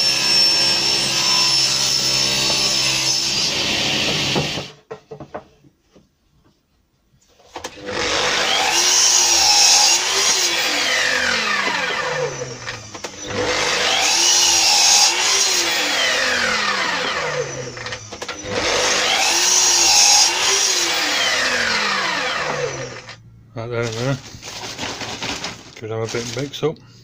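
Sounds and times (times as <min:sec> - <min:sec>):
mitre saw cutting plywood: 0:00.0 - 0:04.8, 0:07.6 - 0:23.2
saw blade whine winding down: 0:07.9 - 0:23.2.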